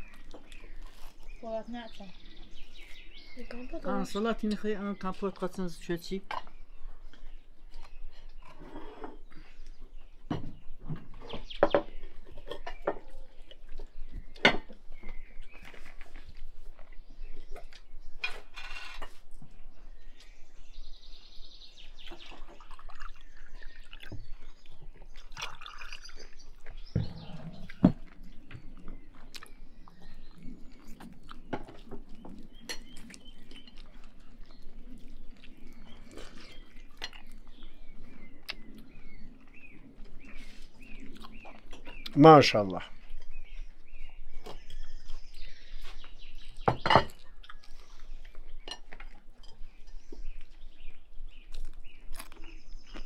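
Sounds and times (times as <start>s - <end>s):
liquid pouring into glasses: 25.3s - 26.2s.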